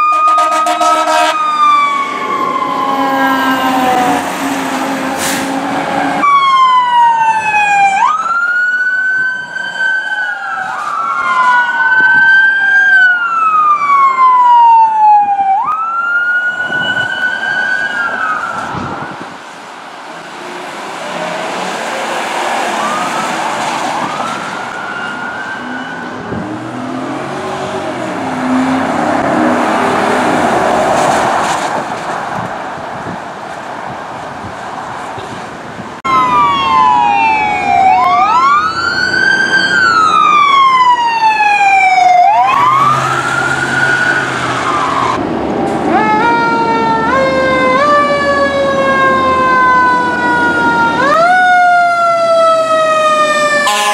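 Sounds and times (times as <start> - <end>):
electronic police siren wailing: 0.0 - 5.0, 6.2 - 19.2, 22.6 - 30.0, 36.1 - 45.2, 45.9 - 53.9
falling siren: 0.0 - 19.4, 21.0 - 31.6, 36.0 - 53.9
road noise rush: 0.0 - 53.9.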